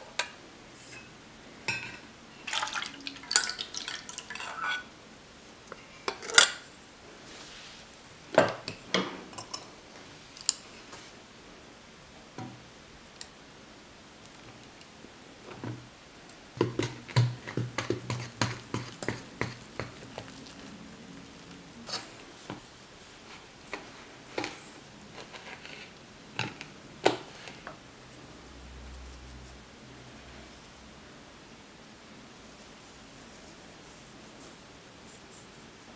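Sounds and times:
whisk scraping glass bowl: 0:16.7 - 0:22.2.

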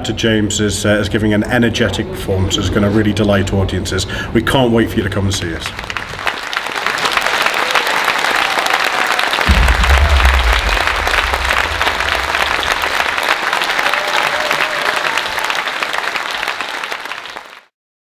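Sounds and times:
audience applauding: 0:05.6 - 0:17.7
low rumble: 0:09.4 - 0:13.5.

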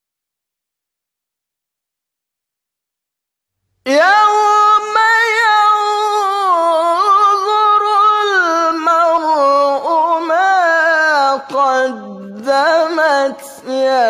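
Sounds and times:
solo voice chanting: 0:03.9 - 0:14.0.

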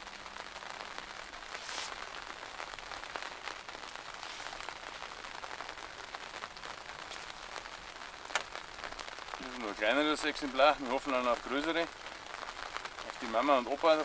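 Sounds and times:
rain falling: 0:00.0 - 0:14.0.

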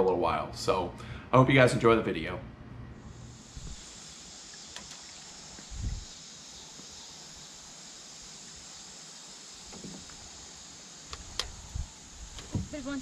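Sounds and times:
insects chorus: 0:03.2 - 0:13.0
dull low thump: 0:12.4 - 0:13.0.

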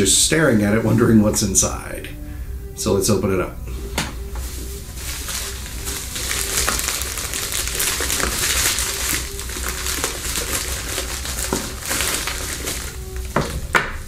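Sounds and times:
cardboard and paper rustling: 0:04.4 - 0:14.0.

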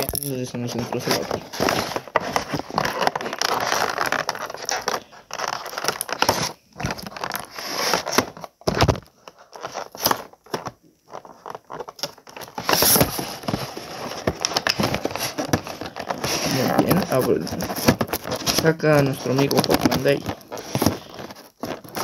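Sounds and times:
plastic packaging crinkling: 0:00.0 - 0:22.0.

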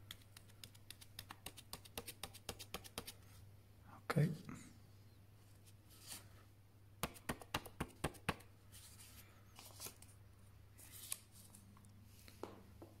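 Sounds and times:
paper rustling: 0:08.7 - 0:10.2, 0:10.8 - 0:11.7.

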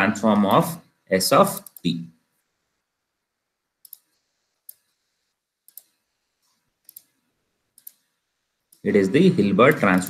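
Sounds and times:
computer mouse clicks: 0:01.5 - 0:01.9, 0:03.8 - 0:05.0, 0:05.6 - 0:08.1, 0:09.7 - 0:10.0.

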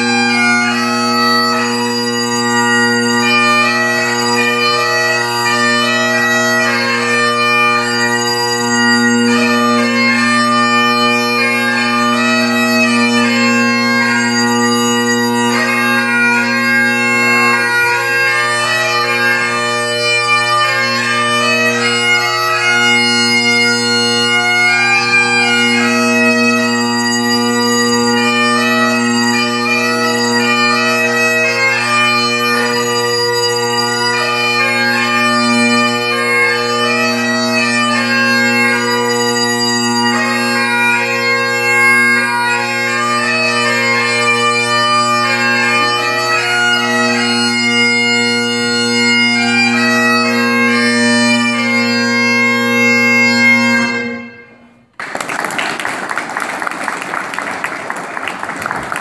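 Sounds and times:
bagpipe playing a tune: 0:00.0 - 0:54.8
applause: 0:54.9 - 0:59.0.

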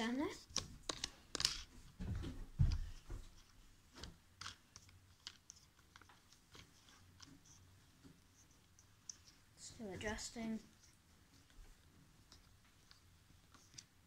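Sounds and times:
light clicks and rubs: 0:02.7 - 0:14.0.

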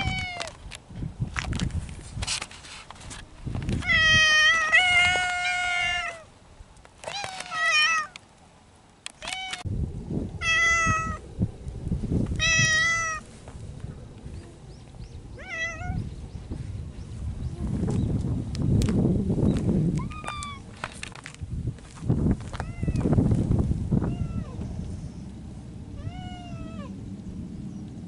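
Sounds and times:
cat meowing: 0:03.8 - 0:06.3, 0:10.4 - 0:11.2, 0:12.4 - 0:13.2, 0:15.4 - 0:16.0, 0:22.6 - 0:23.0, 0:24.1 - 0:24.6, 0:26.0 - 0:26.9.

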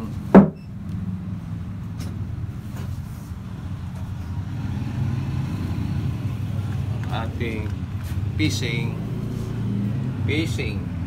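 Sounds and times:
sharp thump: 0:00.4 - 0:00.6.

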